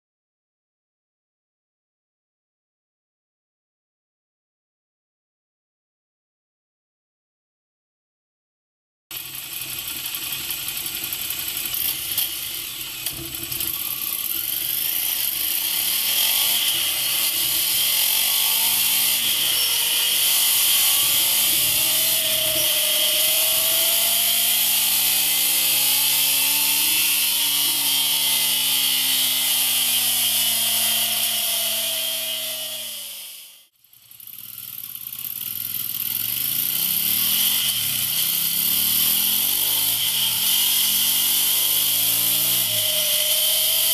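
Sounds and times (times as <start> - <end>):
motorcycle engine: 9.1 - 43.9.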